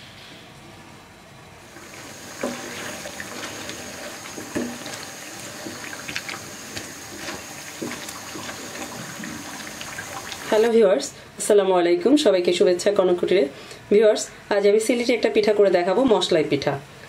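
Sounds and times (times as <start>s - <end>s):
deep-frying in hot oil: 1.7s - 11.0s.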